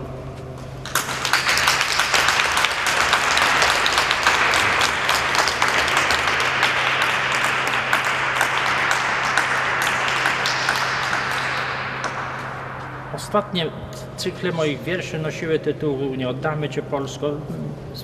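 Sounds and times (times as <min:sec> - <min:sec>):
audience applauding: 0:00.8 - 0:12.8.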